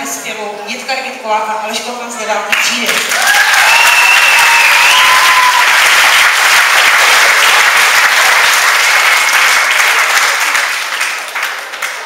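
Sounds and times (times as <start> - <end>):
audience applauding: 3.0 - 12.0.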